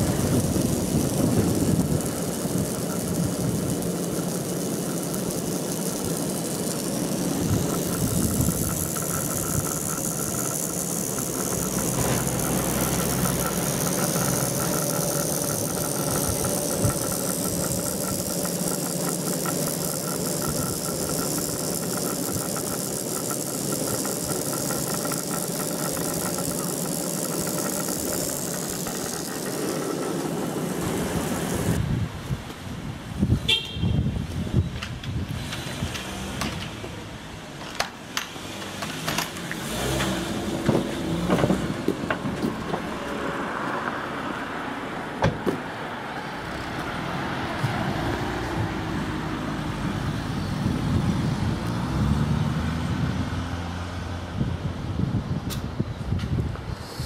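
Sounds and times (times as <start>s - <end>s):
steady high tone: 0.0s - 31.8s
haul rope and pulleys running: 0.0s - 31.9s, 34.8s - 53.4s.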